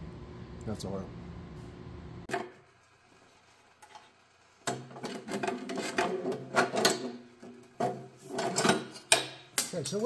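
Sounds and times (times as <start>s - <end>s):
metal parts clattering and scraping: 4.9s - 10.0s.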